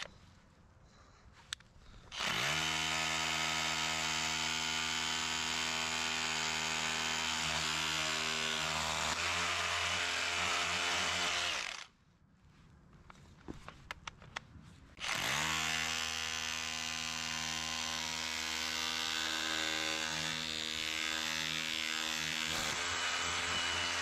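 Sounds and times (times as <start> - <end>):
power tool motor running: 2.1 - 11.9, 15.0 - 24.0.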